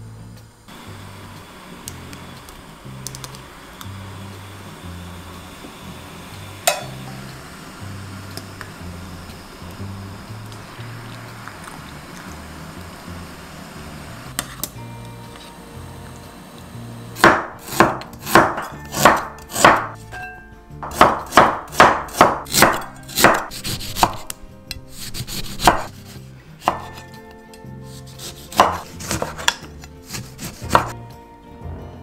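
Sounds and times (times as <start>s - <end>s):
knife chopping on wooden board: 17.2s - 20.0s, 20.8s - 27.1s, 28.0s - 31.0s.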